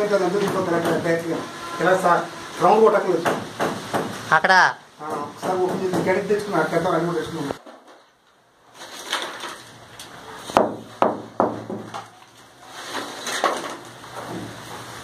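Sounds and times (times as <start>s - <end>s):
hammer striking brick wall: 10.5s - 12.1s.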